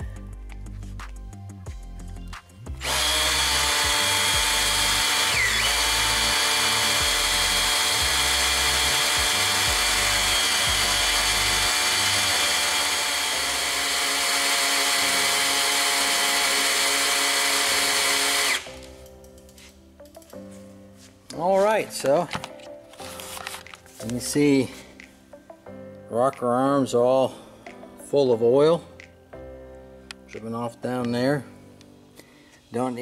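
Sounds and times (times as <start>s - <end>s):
cordless drill running: 2.8s - 18.9s.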